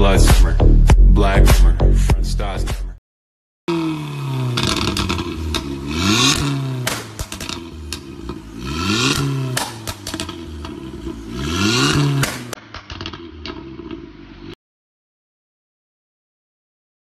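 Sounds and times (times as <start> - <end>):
car engine revving: 3.7 - 14.6
exhaust pops and crackles: 4.5 - 14.1.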